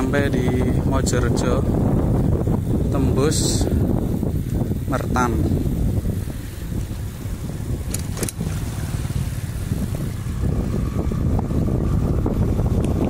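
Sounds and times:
wind buffeting microphone: 0.0 - 13.0
sharp clicks: 7.8 - 8.4.

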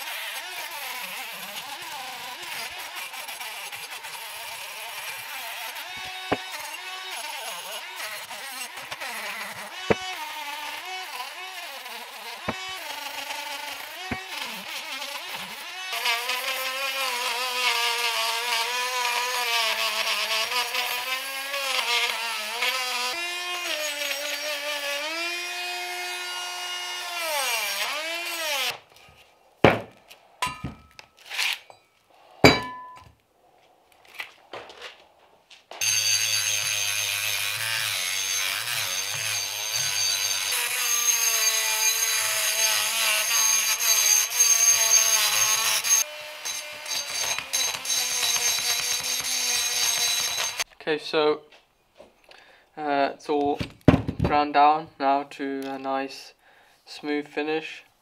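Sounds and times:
rotary tool grinding metal: 0.0 - 29.2, 30.4 - 31.8, 35.8 - 50.7
sharp knocks of metal parts: 29.6 - 31.0, 31.7 - 33.1.

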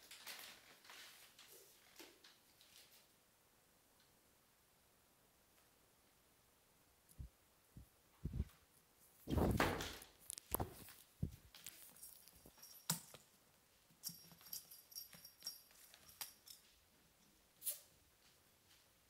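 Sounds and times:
faint high metallic jingling: 11.7 - 17.3.

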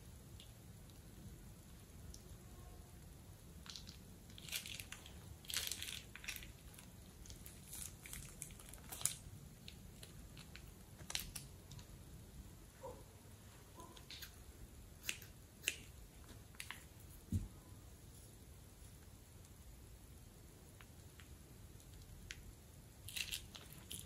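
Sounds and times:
plastic bag crinkling: 3.6 - 11.9, 23.1 - 24.0.

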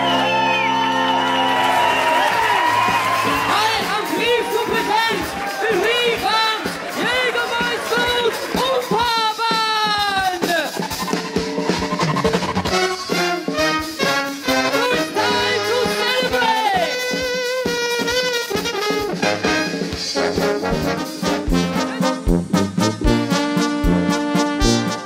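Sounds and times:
oompah brass band playing: 0.0 - 25.0
trumpets playing a tune: 12.6 - 25.0.

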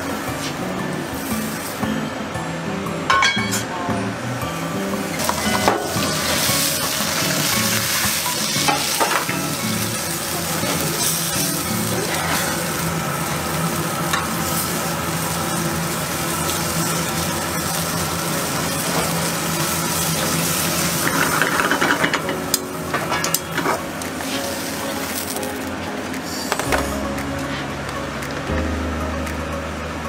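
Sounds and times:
egg sizzling in a pan: 5.1 - 22.0.

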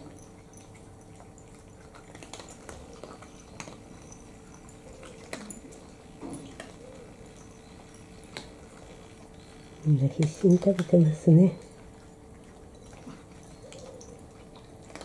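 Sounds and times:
cats eating from bowls: 0.0 - 15.0
faint steady hum: 0.0 - 15.0.

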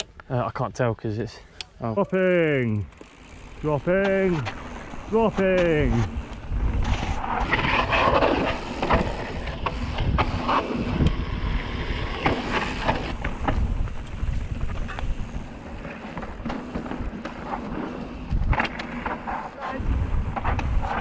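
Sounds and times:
chain and frame rattle: 2.0 - 6.4, 7.3 - 11.1, 12.2 - 13.5, 14.8 - 16.8, 18.5 - 19.8, 20.4 - 21.0
wind rushing over microphone: 4.8 - 17.2, 18.2 - 21.0.

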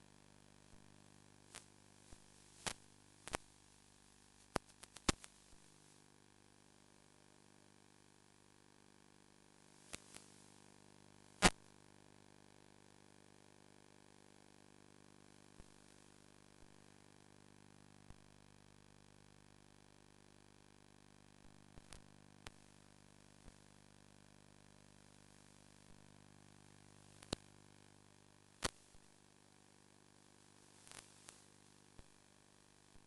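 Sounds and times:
static hiss: 0.0 - 8.5, 9.3 - 33.0
sharp clicks and pops: 1.5 - 3.5, 4.5 - 5.4, 11.4 - 11.6, 27.2 - 27.5, 28.6 - 28.9.

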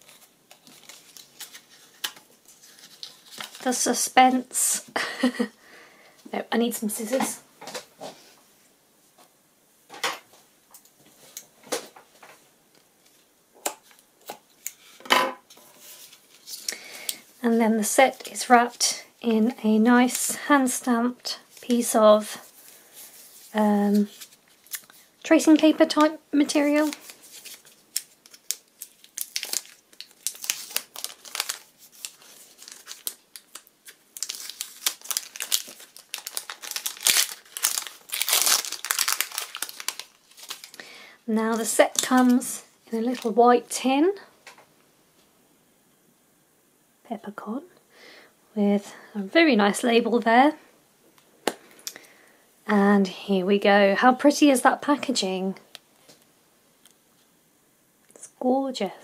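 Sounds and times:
paper rustling: 0.0 - 4.0, 13.8 - 16.8, 21.5 - 40.8.

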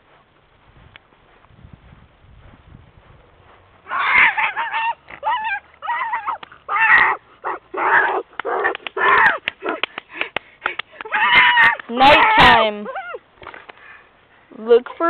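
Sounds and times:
girl yelping and howling: 3.9 - 8.2, 9.0 - 9.8, 11.0 - 13.2.

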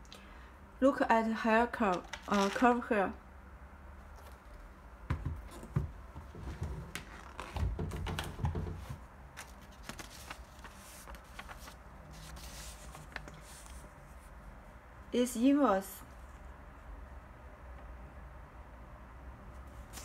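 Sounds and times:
paper receipt rustling: 8.2 - 14.0.

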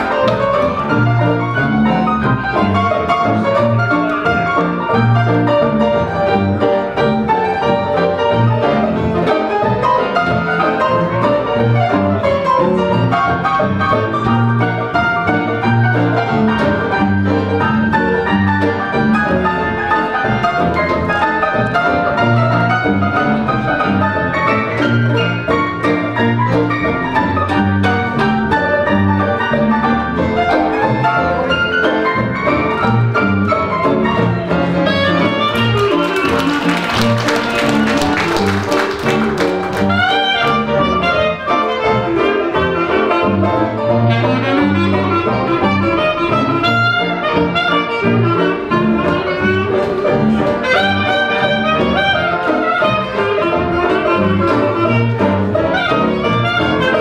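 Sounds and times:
clarinet lead: 0.0 - 57.0
dixieland jazz band playing: 0.0 - 57.0
scattered applause: 35.4 - 40.5.

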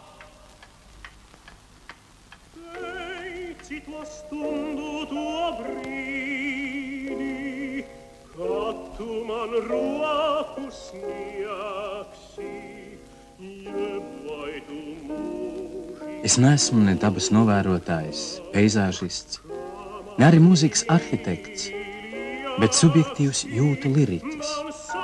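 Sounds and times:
operatic singing: 0.0 - 1.2, 2.5 - 25.0
piano accompaniment: 1.8 - 25.0.

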